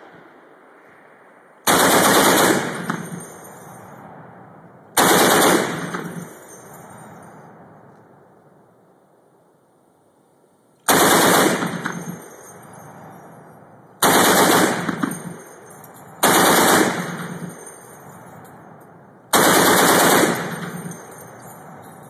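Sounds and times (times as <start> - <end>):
machine gun bursts: 1.7 - 3.2, 5.0 - 6.3, 10.9 - 12.3, 14.0 - 15.4, 16.2 - 17.8, 19.3 - 21.3
gunfire echo: 1.7 - 3.6, 5.0 - 6.4, 10.9 - 12.5, 14.0 - 18.1, 19.3 - 21.5.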